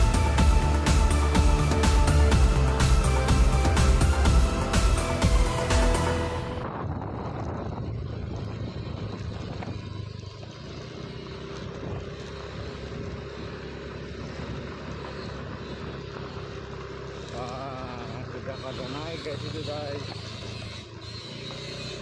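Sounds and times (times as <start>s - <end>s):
background music: 0.0s - 6.7s
small motorcycle engine humming: 0.0s - 22.0s.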